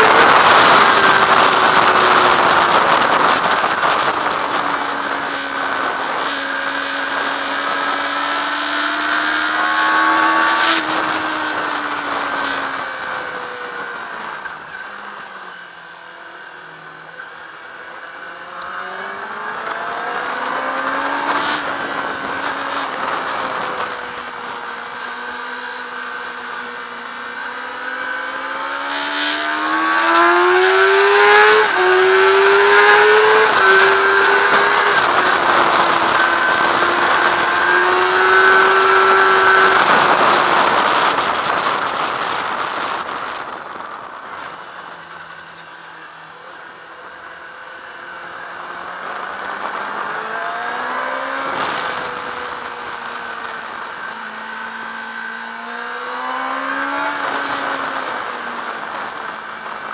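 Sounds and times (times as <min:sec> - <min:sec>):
wind rush over microphone: 0:00.0 - 0:08.2, 0:29.7 - 0:45.3
motorcycle engine revving: 0:00.0 - 0:59.9.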